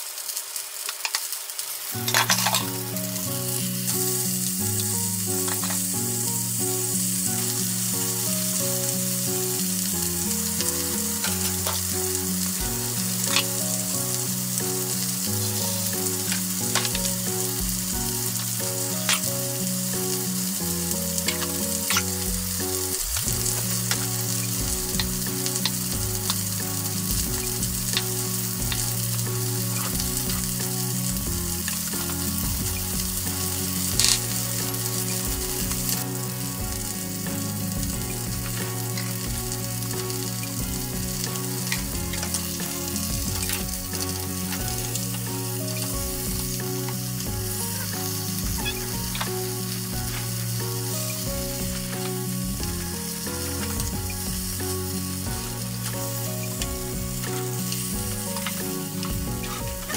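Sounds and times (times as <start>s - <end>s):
chicken sizzling in frying pan: 0.0s - 59.9s
chicken turned in pan: 0.6s - 59.9s.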